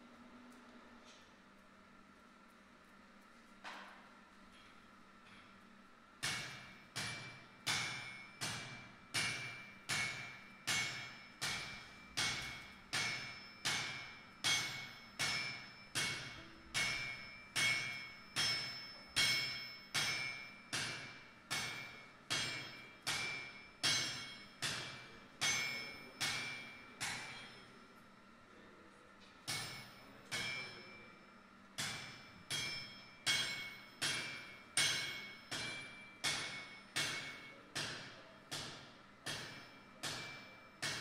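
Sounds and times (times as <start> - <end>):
hammer striking metal on anvil: 6.2 - 27.8, 29.4 - 41.0.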